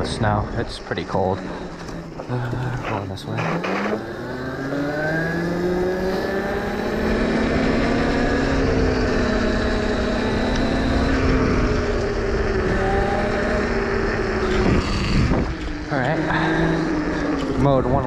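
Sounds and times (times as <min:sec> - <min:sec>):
electric motor whining: 0:00.0 - 0:18.0
wind and tyre noise: 0:00.0 - 0:18.0.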